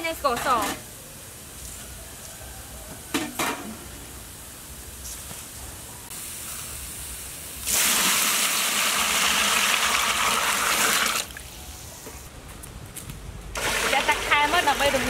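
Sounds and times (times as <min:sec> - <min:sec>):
water pouring into metal pot: 0:07.6 - 0:11.4.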